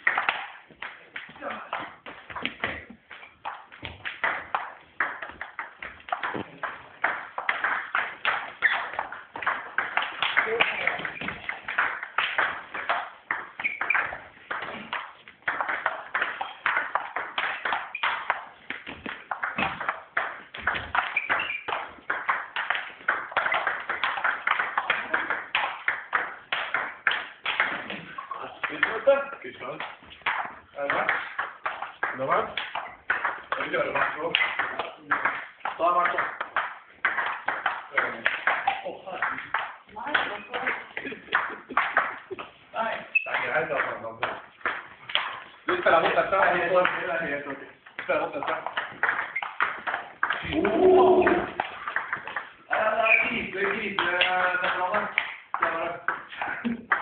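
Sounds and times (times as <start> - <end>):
table tennis ball knocking: 0.1 - 29.1, 30.0 - 42.4, 43.1 - 57.0.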